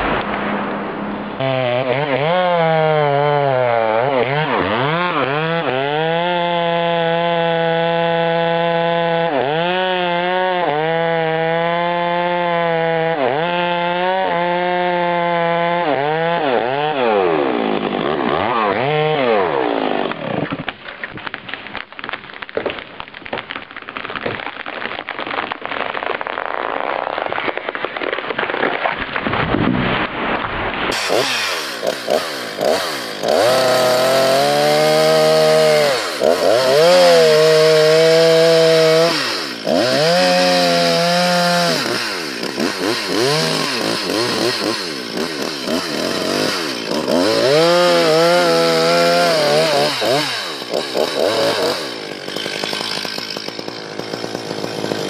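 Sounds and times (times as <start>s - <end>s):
second chainsaw revving: 1.4s - 20.5s, 30.9s - 55.0s
chainsaw cutting into trunk: 1.4s - 24.5s, 27.3s - 55.0s.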